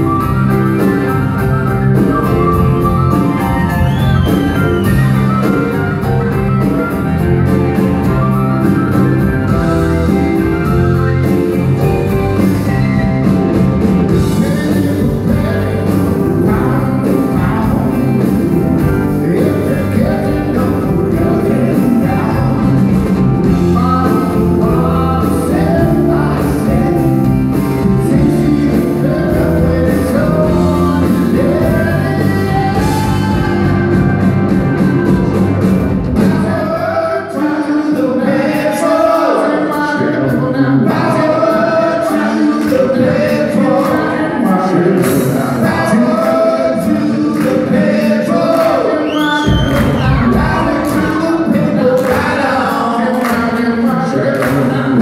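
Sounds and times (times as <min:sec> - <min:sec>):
person singing: 0:00.0 - 0:55.0
rock band playing live: 0:00.0 - 0:55.0.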